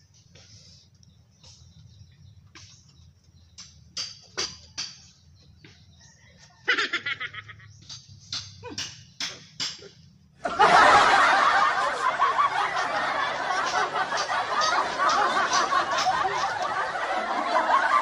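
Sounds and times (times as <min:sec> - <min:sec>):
crowd laughing: 0:06.6 - 0:07.7, 0:10.4 - 0:18.0.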